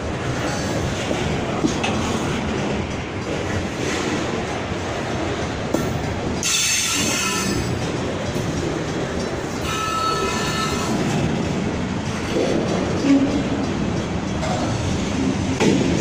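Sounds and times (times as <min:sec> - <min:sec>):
train wheels rumbling on rail: 0:00.0 - 0:16.0
high-pitched wheel squeal: 0:09.6 - 0:11.0.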